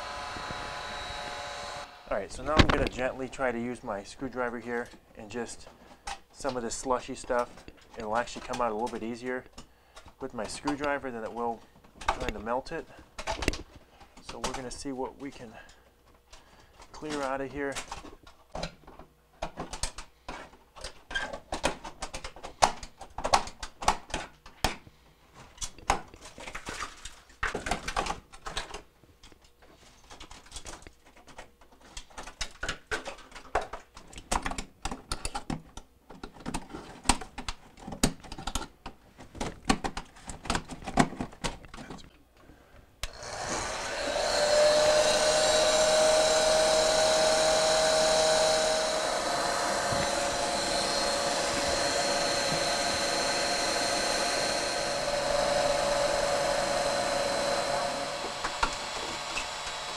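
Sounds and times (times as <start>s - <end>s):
hot-air blower whining: 0.0s - 3.0s, 43.0s - 59.9s
screwdriver scraping ice: 43.1s - 59.9s.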